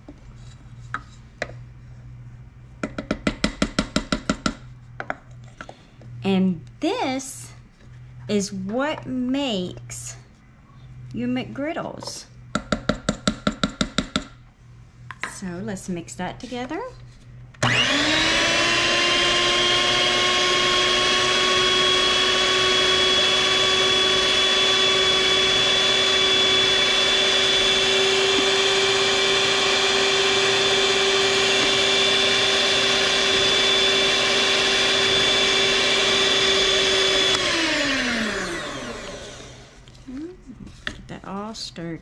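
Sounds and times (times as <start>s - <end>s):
electric mixer whining: 17.6s - 39.9s.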